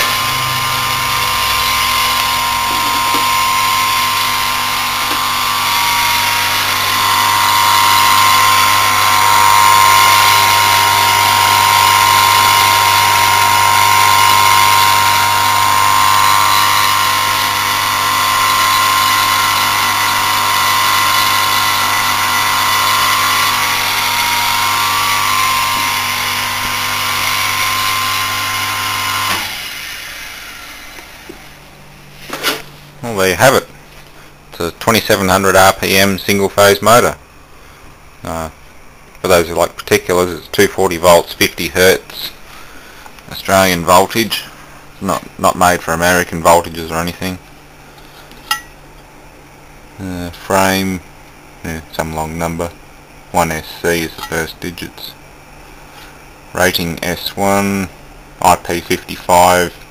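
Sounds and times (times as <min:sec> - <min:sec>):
electric motor humming and whining: 0:00.0 - 0:31.6.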